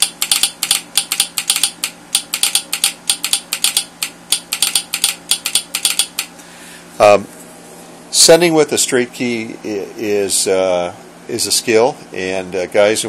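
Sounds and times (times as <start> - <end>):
telegraph sounder clicking: 0.0 - 6.3.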